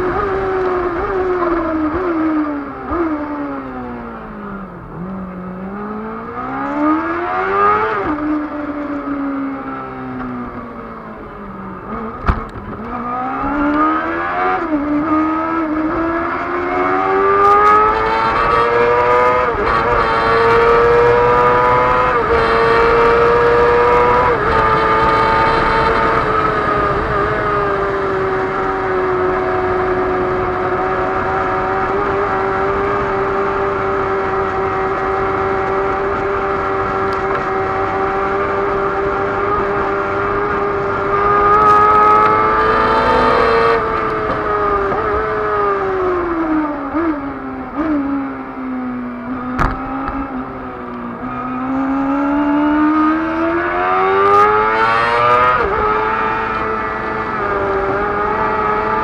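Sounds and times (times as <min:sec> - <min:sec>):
racing engine accelerating: 0:00.0 - 0:59.0.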